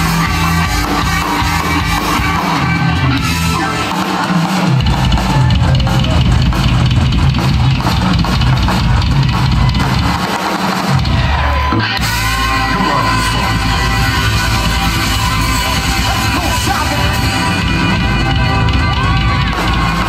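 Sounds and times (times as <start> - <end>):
live rock band playing: 0.0 - 20.0
saxophone: 11.9 - 20.0.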